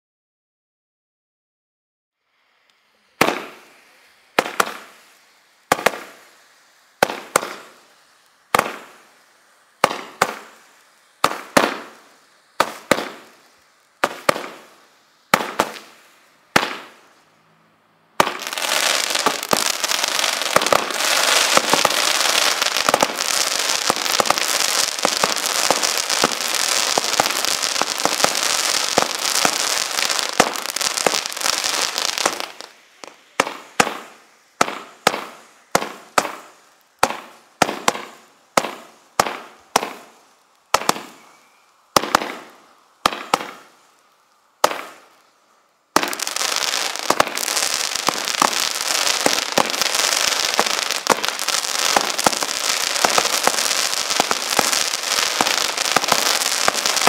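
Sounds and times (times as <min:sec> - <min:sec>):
fireworks crackling: 0:02.2 - 0:57.0
firework bangs with echo: 0:03.2 - 0:03.8, 0:04.4 - 0:04.9, 0:05.7 - 0:06.2, 0:07.0 - 0:07.8, 0:08.5 - 0:09.0, 0:09.8 - 0:10.6, 0:11.2 - 0:12.0, 0:12.6 - 0:13.3, 0:14.0 - 0:14.7, 0:15.3 - 0:15.9, 0:16.5 - 0:17.0, 0:18.2 - 0:41.2, 0:41.9 - 0:43.7, 0:44.6 - 0:45.1, 0:46.0 - 0:57.0.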